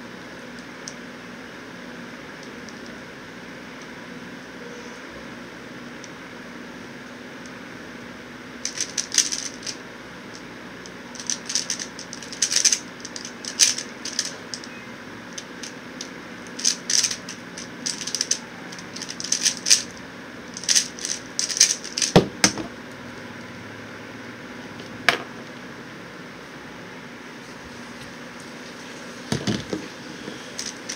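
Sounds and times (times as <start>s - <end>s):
electric fan humming: 0.0s - 30.9s
puzzle cube layers clacking: 8.6s - 10.5s, 11.1s - 14.8s, 15.4s - 22.2s
cube thump on surface: 22.1s - 22.7s.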